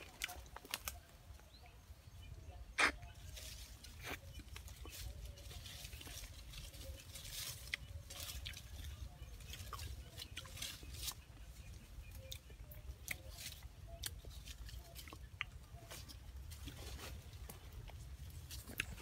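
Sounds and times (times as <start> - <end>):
rustling and snapping of leaves: 0.0 - 1.1, 2.8 - 19.0.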